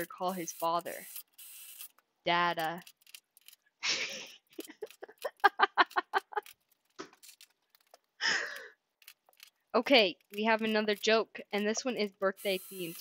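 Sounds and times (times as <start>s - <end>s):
person laughing: 3.8s - 6.5s, 8.2s - 8.7s
person breathing: 8.2s - 8.8s.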